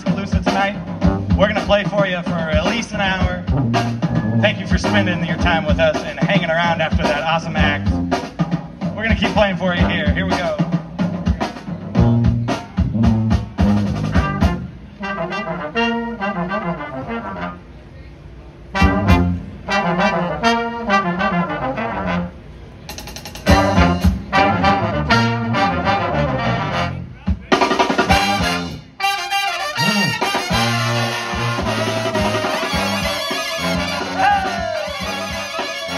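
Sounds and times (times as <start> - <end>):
drum hits: 0.0 - 14.7, 22.9 - 24.5, 27.2 - 29.0, 29.9 - 35.9
brass band playing: 0.0 - 17.8, 18.6 - 35.9.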